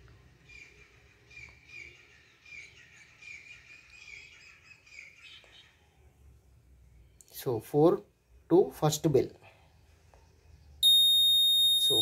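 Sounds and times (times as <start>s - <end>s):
bird chirping: 0.4s - 6.1s.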